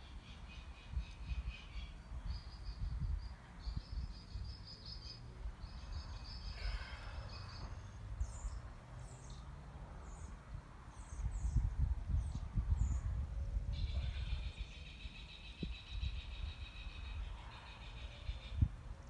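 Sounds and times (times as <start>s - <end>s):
bird chirps: 13.8s - 18.7s.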